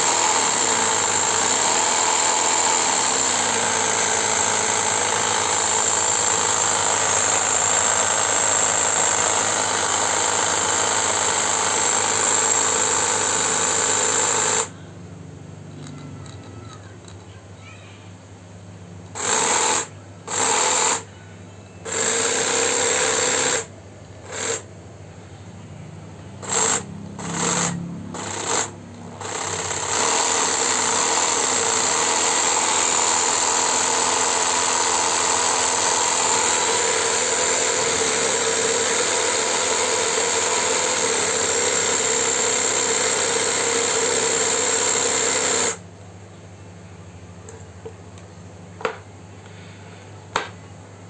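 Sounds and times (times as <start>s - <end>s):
cordless jigsaw running: 0.0s - 14.7s, 19.1s - 21.1s, 21.9s - 24.7s, 26.4s - 45.8s.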